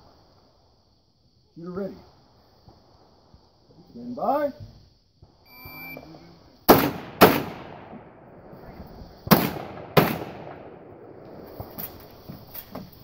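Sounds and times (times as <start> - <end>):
gunshots with echoing tail: 6.7 - 11.7.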